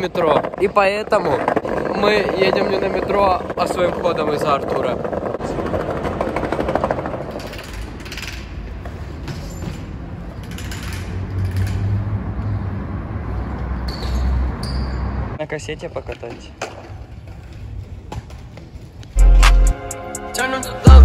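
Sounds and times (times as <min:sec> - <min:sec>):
low rumble of street noise: 0:00.0 - 0:19.2.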